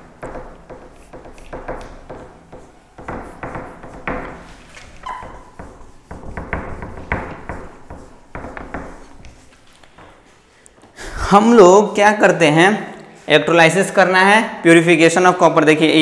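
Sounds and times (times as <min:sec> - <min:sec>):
duster scrubbing a whiteboard: 0:00.0 - 0:10.5.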